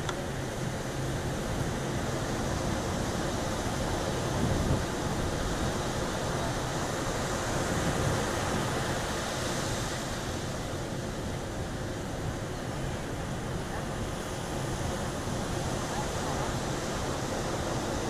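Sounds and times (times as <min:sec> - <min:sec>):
wind buffeting microphone: 0:00.3 - 0:09.0.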